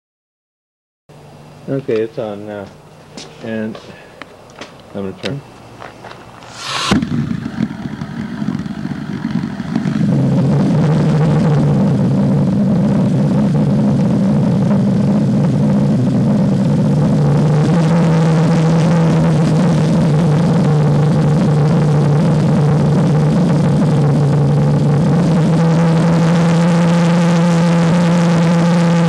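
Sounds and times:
ignition pop: 0:06.1 - 0:14.2
jet engine running roar: 0:06.2 - 0:29.0
gas hiss: 0:06.4 - 0:13.2.

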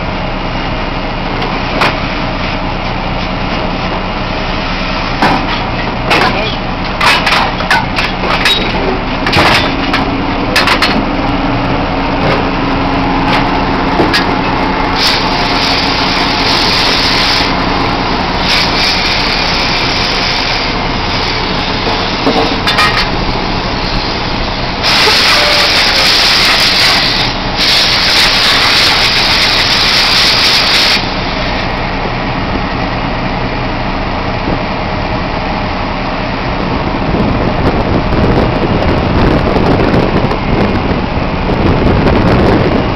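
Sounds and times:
drilling rig machinery running: 0:00.0 - 0:42.9
metal clanks: 0:05.2 - 0:11.1, 0:13.2 - 0:14.6, 0:21.8 - 0:23.3.

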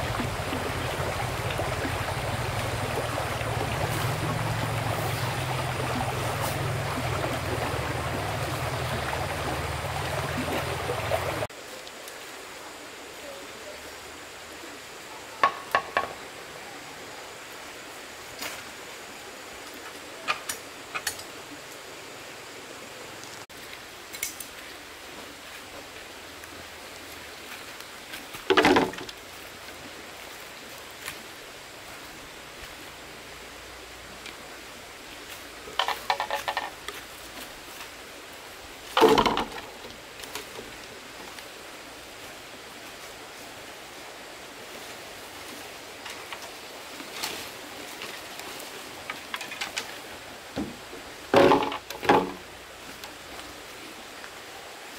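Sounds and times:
steady background hiss: 0:00.0 - 0:54.9
sharp knocks: 0:39.0 - 0:39.8, 0:51.3 - 0:52.4.

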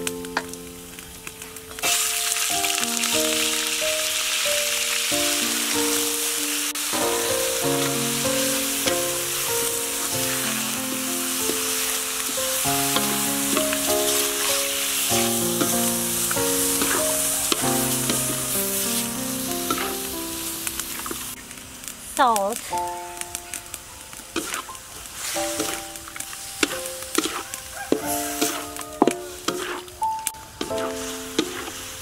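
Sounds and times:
background music: 0:00.0 - 0:24.6, 0:25.2 - 0:32.0
squid sizzling in hot oil: 0:00.0 - 0:32.0
spatula scraping wok: 0:06.8 - 0:21.2, 0:24.3 - 0:32.0.

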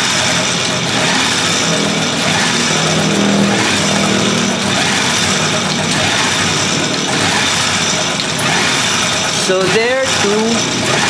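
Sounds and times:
hand-crank generator whirring: 0:00.0 - 0:11.0.

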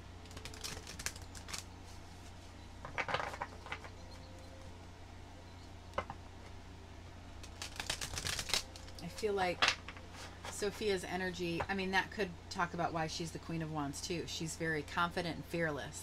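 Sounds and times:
cards being shuffled: 0:00.2 - 0:02.4, 0:07.4 - 0:10.5.

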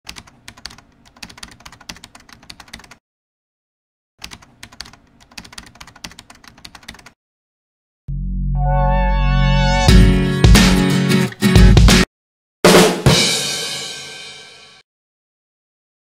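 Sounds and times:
computer keyboard typing: 0:00.1 - 0:03.0, 0:04.2 - 0:07.2.

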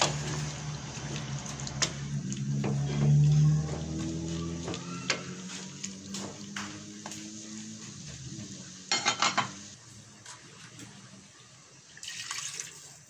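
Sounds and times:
wooden spoon stirring in metal pot: 0:00.0 - 0:08.4
clattering knocks against pot: 0:08.9 - 0:09.6.

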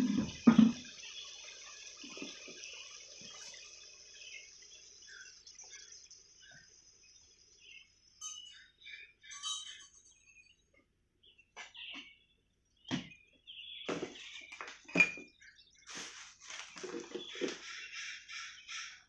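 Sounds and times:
steady high hiss: 0:00.0 - 0:09.9
birds chirping: 0:00.0 - 0:19.0.

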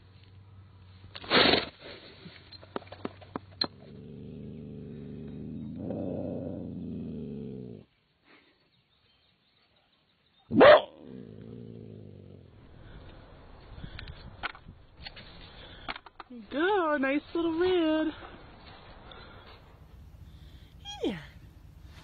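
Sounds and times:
coyote growling: 0:03.6 - 0:07.9, 0:10.6 - 0:13.0, 0:19.0 - 0:22.0
coyote barking: 0:10.5 - 0:11.1
bear huffing: 0:19.0 - 0:22.0.

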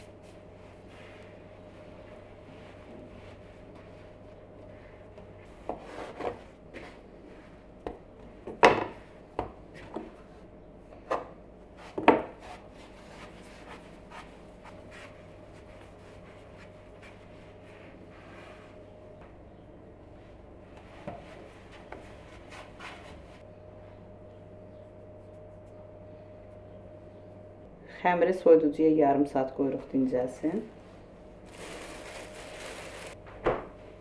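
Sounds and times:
hands rubbing dough: 0:00.0 - 0:07.8, 0:11.7 - 0:18.8, 0:20.7 - 0:23.4, 0:24.8 - 0:25.9.

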